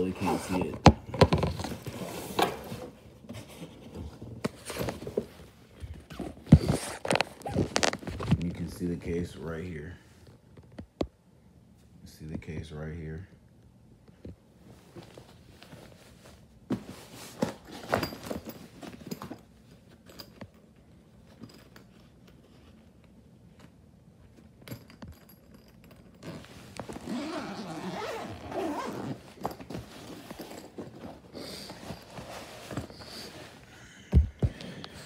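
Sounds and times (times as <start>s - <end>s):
zipper being pulled open: 6.2s - 8.0s, 26.2s - 33.3s.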